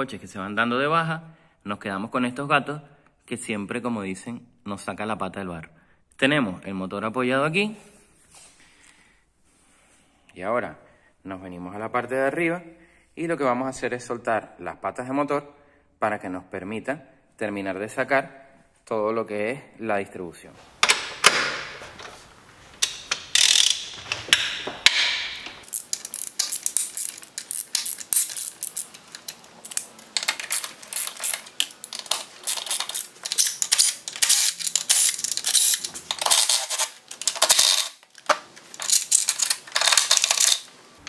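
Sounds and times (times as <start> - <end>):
ratchet wrench clicking: 22.8 - 38.0, 38.8 - 40.7.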